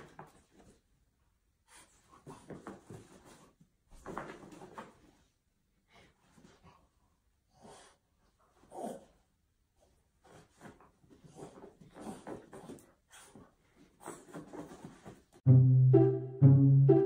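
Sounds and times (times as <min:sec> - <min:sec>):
dogs wheezing and snuffling: 0:10.2 - 0:15.2.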